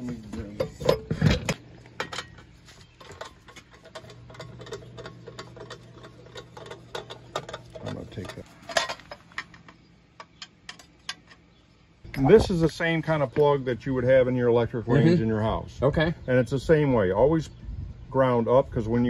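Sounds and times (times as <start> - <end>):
low steady hum: 0.0 - 19.0
metallic clatter: 0.3 - 11.4.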